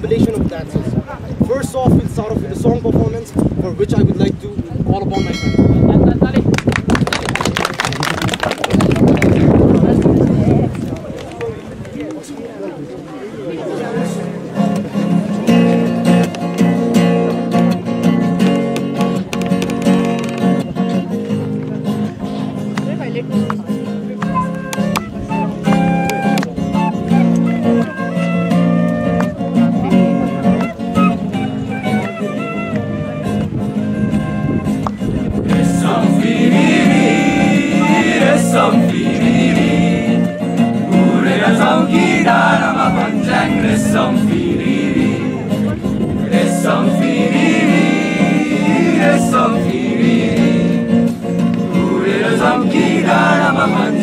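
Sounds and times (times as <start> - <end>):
acoustic guitar strumming: 5.0 - 6.4, 13.8 - 54.0
bamboo flute melody: 24.1 - 44.9, 46.4 - 54.0
group of voices singing: 35.4 - 54.0.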